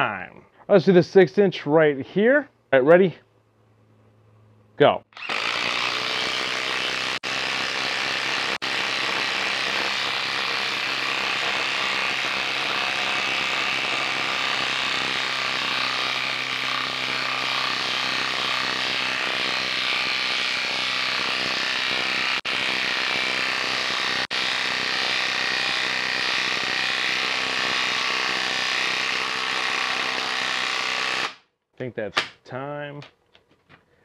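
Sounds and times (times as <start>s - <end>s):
impact driver hammering: 5.2s - 31.4s.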